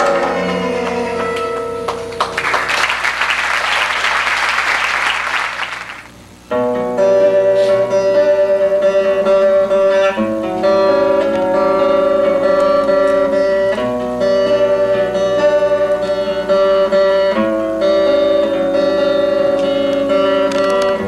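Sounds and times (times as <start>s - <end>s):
acoustic guitars picking notes: 0.0s - 5.0s, 5.6s - 21.0s
audience applause: 0.0s - 6.1s.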